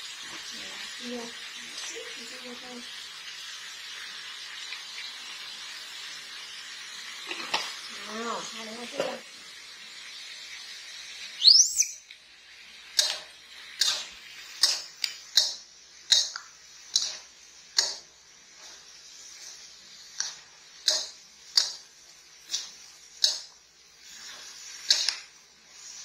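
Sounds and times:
metal spatula scraping wok: 13.0 - 26.0.

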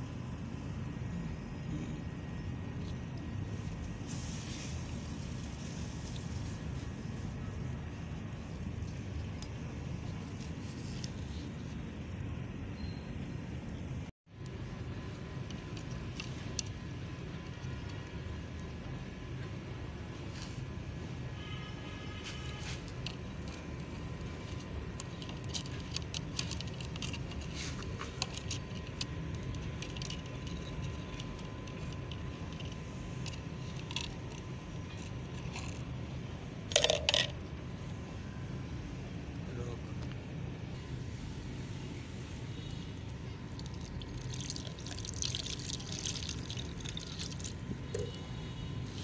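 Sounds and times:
low background noise: 0.0 - 49.0
steady low hum: 0.0 - 49.0
liquid pouring into plastic cup: 43.5 - 47.6.

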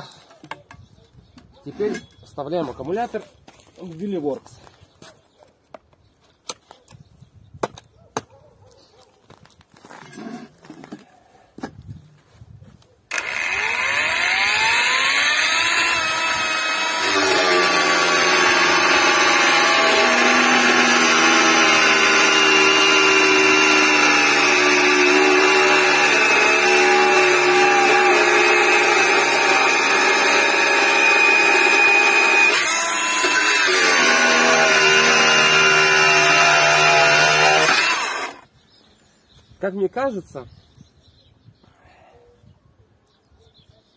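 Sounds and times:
angle grinder whine: 13.1 - 38.4
grinder disc cutting steel: 13.1 - 38.4.

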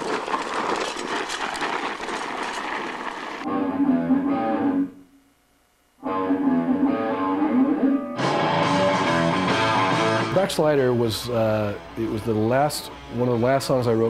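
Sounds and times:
electric guitar picked riff: 3.5 - 5.0, 6.0 - 13.4.

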